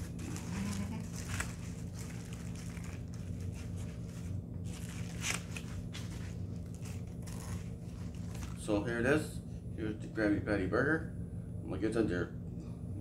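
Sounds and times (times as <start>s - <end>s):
paper wrapper crinkling: 0.0s - 8.7s
low hum: 0.0s - 13.0s.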